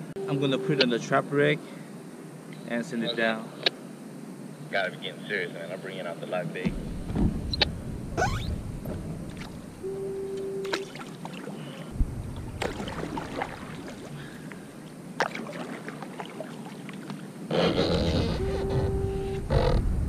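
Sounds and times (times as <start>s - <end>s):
short steady beep: 0.1s - 1.0s, 9.8s - 10.9s
paddle knocking against plastic hull: 6.7s - 7.9s
kayak paddle splashing in water: 9.3s - 9.7s, 10.6s - 17.4s
rushing splash: 10.6s - 17.4s.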